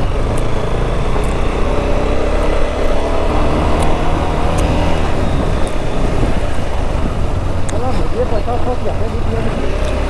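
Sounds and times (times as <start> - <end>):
motorcycle engine running: 0.0 - 10.0
sharp ticks: 0.2 - 0.5.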